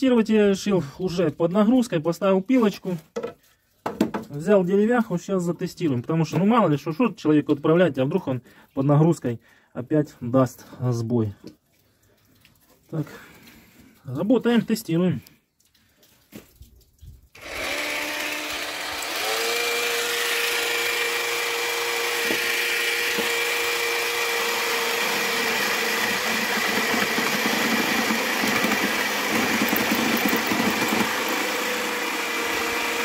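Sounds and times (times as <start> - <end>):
jigsaw blade cutting wood: 17.4 - 33.0
jigsaw motor hum: 17.4 - 33.0.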